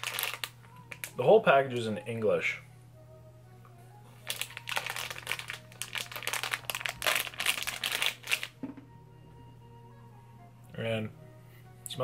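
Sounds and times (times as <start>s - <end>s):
plastic bag crinkling: 0.0s - 1.2s, 4.2s - 8.6s.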